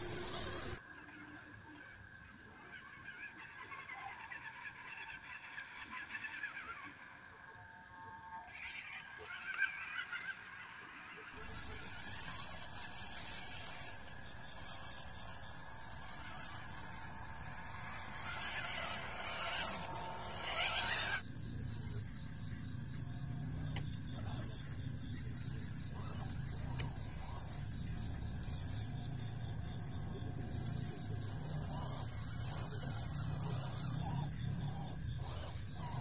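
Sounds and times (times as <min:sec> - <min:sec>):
small electric motors whirring: 0:00.0 - 0:00.8, 0:11.3 - 0:21.3, 0:26.0 - 0:36.0.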